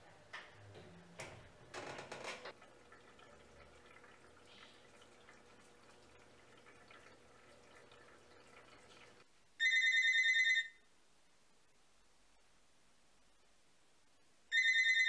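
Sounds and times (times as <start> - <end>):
washing machine water sounds: 0.0 - 9.3
cordless phone ringing: 9.6 - 10.8, 14.5 - 15.0.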